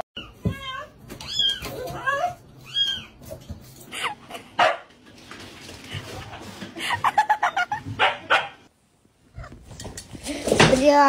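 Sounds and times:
dog barking and yipping: 4.6 - 4.9, 8.0 - 8.7.

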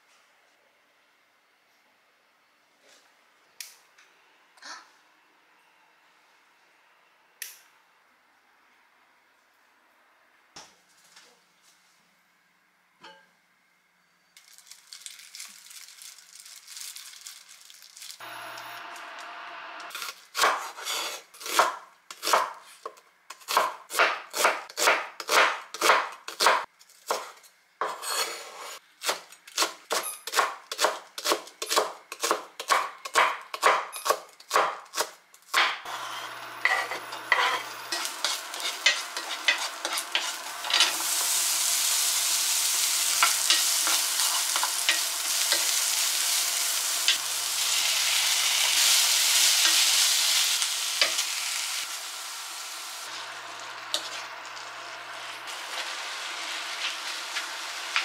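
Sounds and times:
vegetables sizzling in hot oil: 14.4 - 21.6, 35.9 - 58.0
knife chopping on cutting board: 20.4 - 28.3, 29.0 - 35.8.

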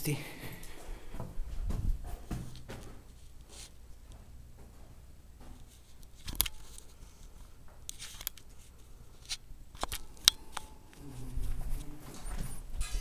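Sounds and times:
sharp clicks and crunches: 5.6 - 6.9, 7.8 - 8.6, 9.2 - 11.0.

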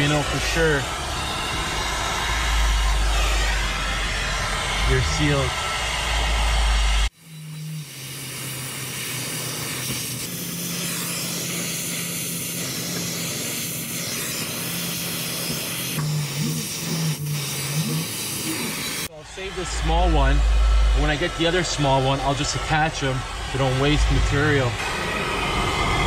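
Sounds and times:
low rumble: 0.0 - 7.1, 19.1 - 26.0
torch flame hissing: 0.0 - 19.1, 21.0 - 26.0
steady low hum: 0.0 - 26.0.

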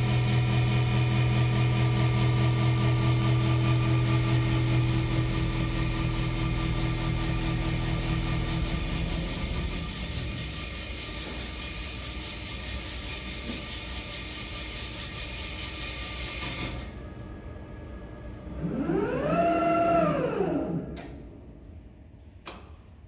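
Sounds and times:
motor whine winding down: 1.3 - 10.4, 16.7 - 21.4.

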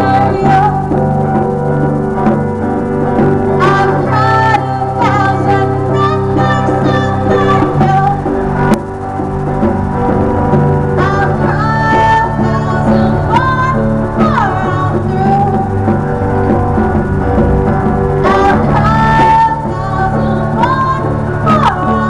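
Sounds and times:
person singing: 0.0 - 1.0, 3.6 - 8.4, 11.0 - 16.0, 18.2 - 22.0
electric guitar: 0.0 - 22.0.

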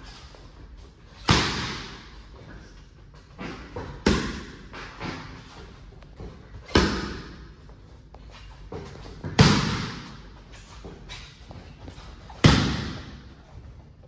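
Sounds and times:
boxing gloves smacking mitts: 1.2 - 2.2, 8.8 - 10.2, 12.3 - 13.2.

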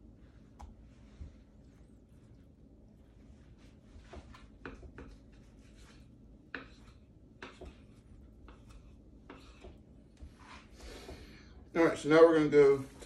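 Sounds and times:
knife scraping and tapping board: 4.0 - 11.2.

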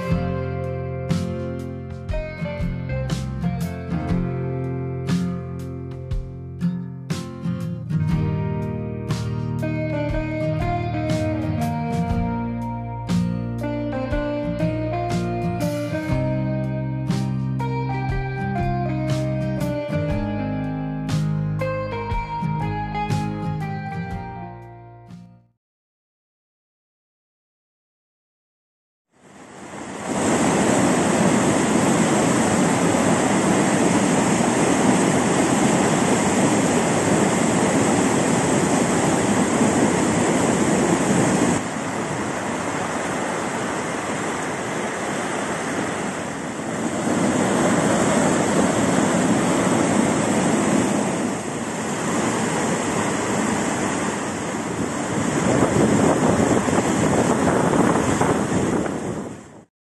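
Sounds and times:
river water rushing over rapids: 29.2 - 59.3.

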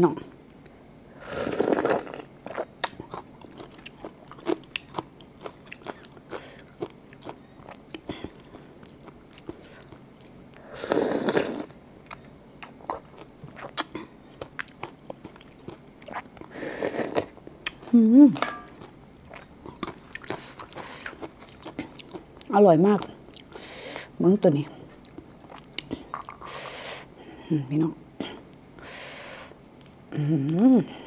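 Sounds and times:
slurping: 1.2 - 2.7.

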